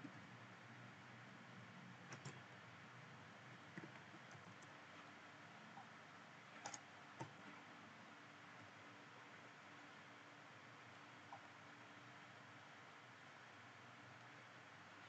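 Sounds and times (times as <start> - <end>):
low steady hiss: 0.0 - 15.0
computer keyboard clicks: 2.1 - 2.4, 6.6 - 7.4.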